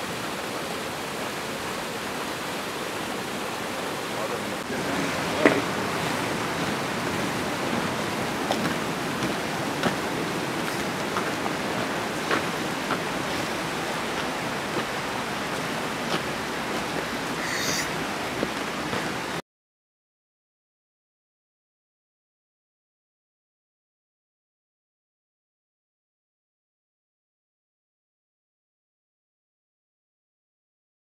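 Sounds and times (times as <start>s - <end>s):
waterfall rushing: 0.0s - 19.4s
footsteps on snowy gravel: 8.4s - 19.2s
short high chirp: 17.4s - 17.9s.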